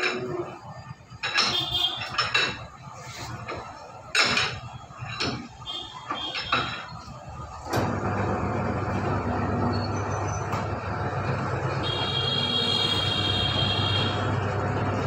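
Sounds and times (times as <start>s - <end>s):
metal clinks and clanks: 0.0s - 2.8s, 4.0s - 7.1s.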